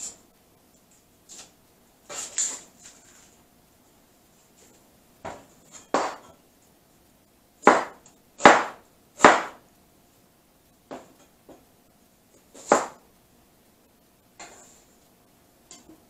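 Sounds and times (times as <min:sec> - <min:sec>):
cleaver chopping onion on board: 0:05.9 - 0:06.3, 0:07.6 - 0:09.6, 0:12.6 - 0:13.0.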